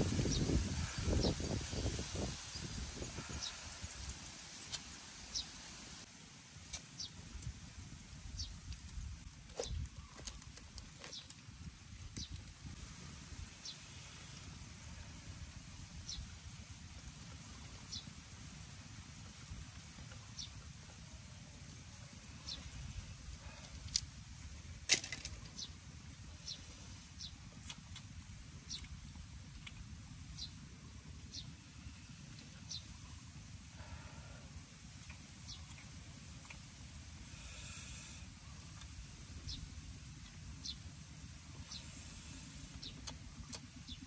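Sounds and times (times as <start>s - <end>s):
wind rumble on microphone: 0.0s - 4.4s.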